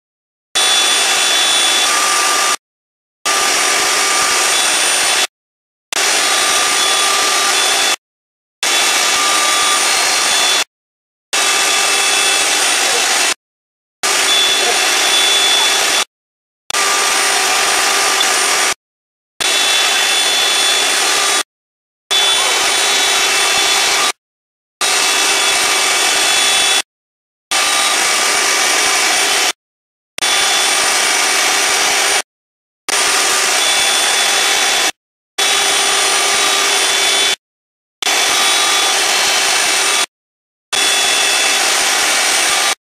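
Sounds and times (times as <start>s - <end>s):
router spindle whining: 0.6s - 2.6s, 3.3s - 5.3s, 5.9s - 8.0s, 8.6s - 10.7s, 11.4s - 13.4s, 14.0s - 16.1s, 16.7s - 18.8s, 19.4s - 21.5s, 22.1s - 24.2s, 24.8s - 26.8s, 27.5s - 29.6s, 30.2s - 32.2s, 32.9s - 37.4s, 38.0s - 40.1s, 40.7s - 42.8s.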